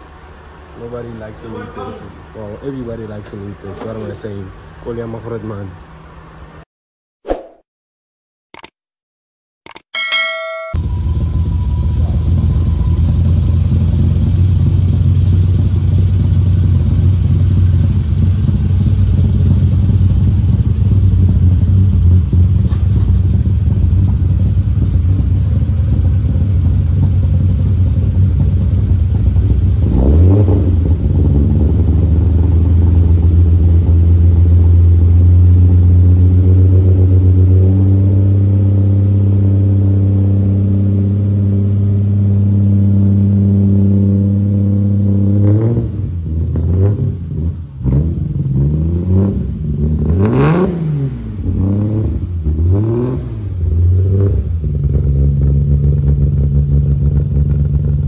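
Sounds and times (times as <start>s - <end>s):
car engine idling: 0.0s - 6.6s, 10.8s - 29.9s, 53.5s - 58.0s.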